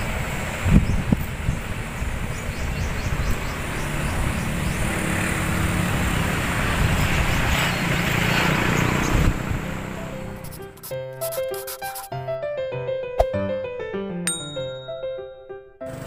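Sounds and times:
wind buffeting microphone: 0.0 - 9.9.

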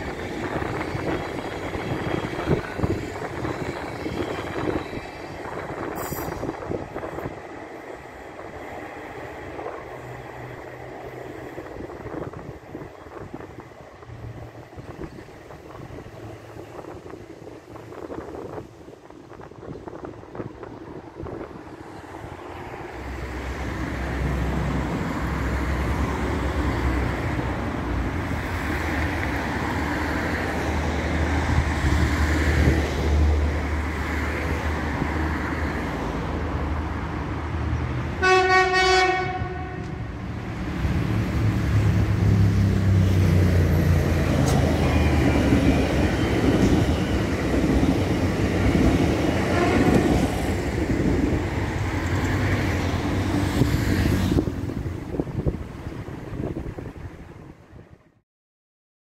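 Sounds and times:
electric train rumbling: 0.0 - 58.2
train horn blast: 38.2 - 40.1, 49.4 - 50.3.

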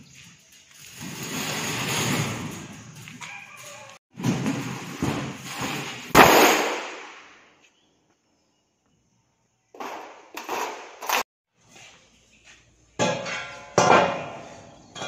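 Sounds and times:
metal sheet popping and clanking: 4.1 - 7.3, 13.0 - 14.4
steel sheet banging onto floor: 4.2 - 7.0.

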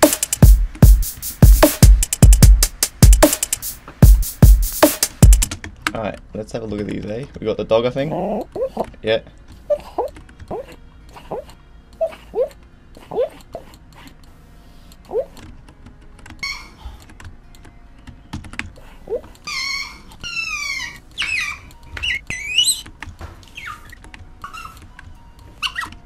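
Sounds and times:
high-pitched animal squealing: 16.4 - 16.8, 19.1 - 24.8, 25.6 - 26.0.

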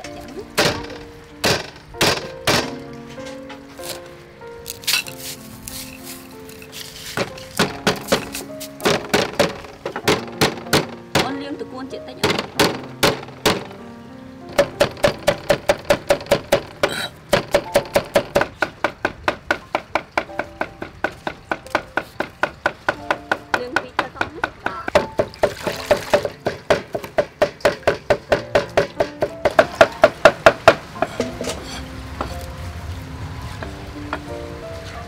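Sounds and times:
cleaver chopping on wooden board: 0.6 - 2.8, 6.8 - 11.3, 12.2 - 13.8, 14.5 - 31.6.

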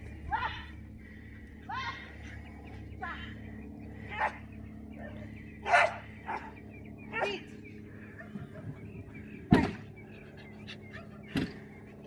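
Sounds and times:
dog barking: 5.6 - 6.5.

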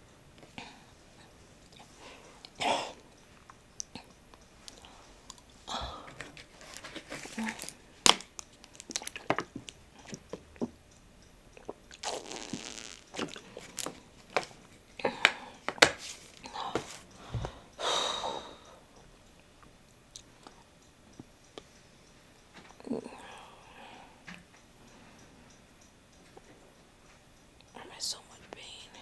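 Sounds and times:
plastic bottle crinkling: 6.4 - 9.6, 12.0 - 14.5
person sipping: 11.6 - 14.2.

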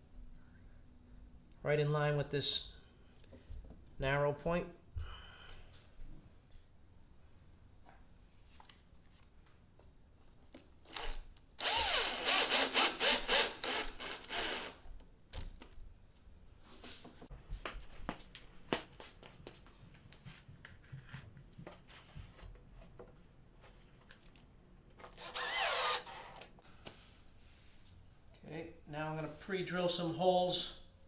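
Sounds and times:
cordless drill whining: 10.9 - 15.4, 25.1 - 26.5.

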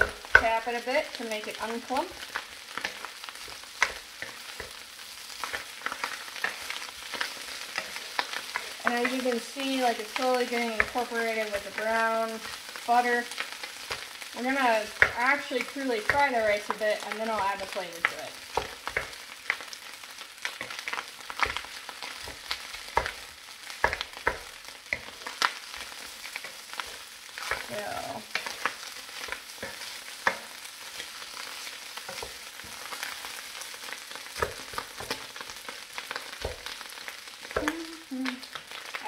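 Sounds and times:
wooden spoon clicking and tapping: 0.0 - 0.6, 2.2 - 4.8, 20.4 - 31.1
rice sizzling in a wok: 0.0 - 39.0.

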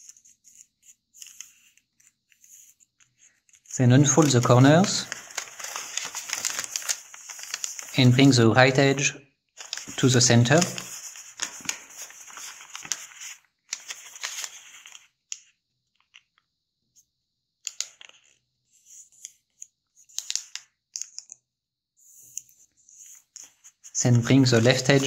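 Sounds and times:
fingers creasing paper: 0.0 - 8.3, 9.6 - 14.7, 23.0 - 25.0
paper rustling: 0.0 - 8.8, 9.6 - 15.1, 23.0 - 25.0.

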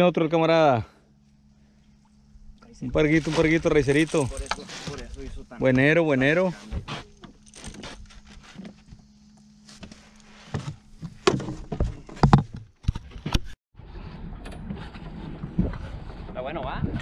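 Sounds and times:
knocks and thumps on boat: 10.4 - 13.5.

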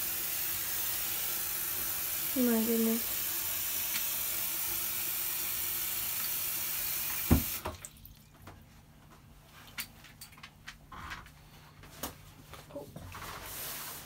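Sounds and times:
tap water filling a basin: 0.0 - 8.3
tap shutting off with a knock: 7.1 - 7.8.

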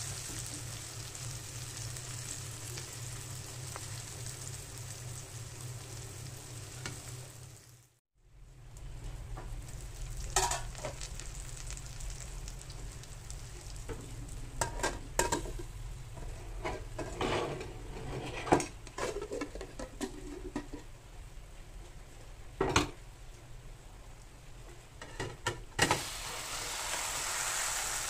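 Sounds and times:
omelette sizzling in a pan: 0.0 - 8.0, 8.8 - 17.1, 25.8 - 28.0.

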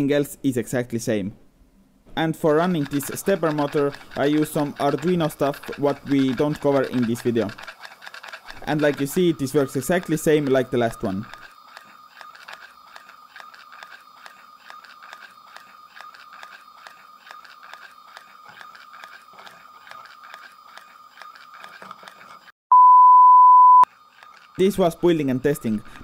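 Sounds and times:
gears clicking: 2.3 - 22.5, 23.9 - 26.0
test-tone beep: 22.7 - 23.9.

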